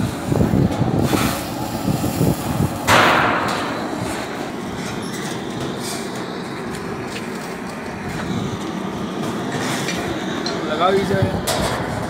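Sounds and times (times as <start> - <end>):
copper pipe thudding: 2.9 - 5.0.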